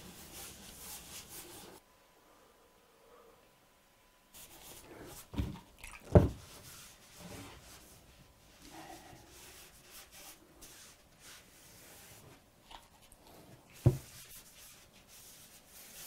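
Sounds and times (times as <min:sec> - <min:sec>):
paintbrush rubbing on paper: 0:00.0 - 0:01.8, 0:04.4 - 0:05.3, 0:06.5 - 0:12.4, 0:13.8 - 0:16.0.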